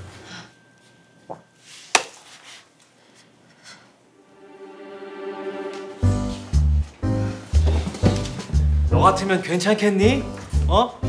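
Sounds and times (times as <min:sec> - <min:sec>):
background score music: 0:04.1 - 0:11.0.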